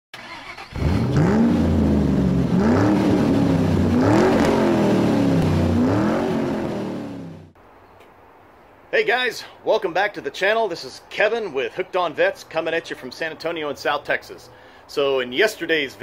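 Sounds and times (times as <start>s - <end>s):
car engine revving: 0.2s - 7.6s.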